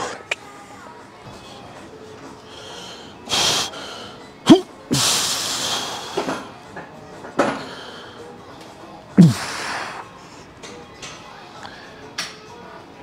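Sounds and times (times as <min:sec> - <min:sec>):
man grunting: 0:09.2 - 0:09.6
man exhaling forcefully: 0:09.2 - 0:10.0.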